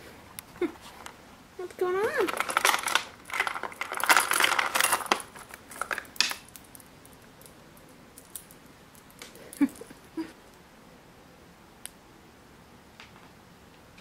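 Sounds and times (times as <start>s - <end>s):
rustling and light scraping: 0.0s - 1.4s.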